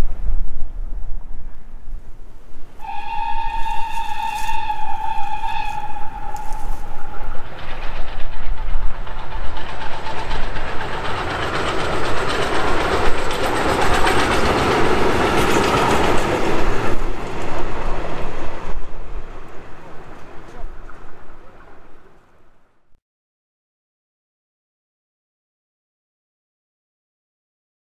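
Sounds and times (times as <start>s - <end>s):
steam locomotive whistle: 2.8s - 8.0s
train clattering past on rails: 2.8s - 22.6s.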